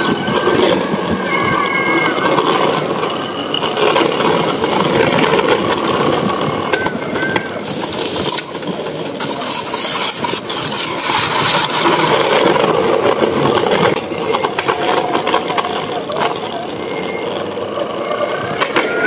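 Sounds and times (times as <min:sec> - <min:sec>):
skateboard wheels rolling on concrete: 0:00.0 - 0:19.0.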